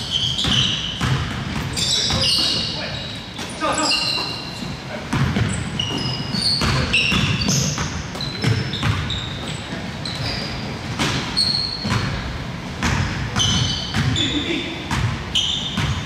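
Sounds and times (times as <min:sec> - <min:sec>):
sneakers squeaking on court floor: 0:00.0 - 0:16.0
basketball bouncing: 0:00.1 - 0:02.5, 0:05.1 - 0:09.6, 0:10.2 - 0:14.3, 0:14.9 - 0:16.0.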